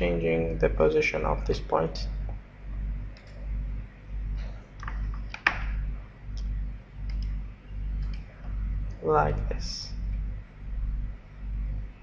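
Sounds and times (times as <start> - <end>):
low pulsing hum: 0.0 - 12.0
computer mouse clicking: 3.1 - 3.4, 6.4 - 7.4.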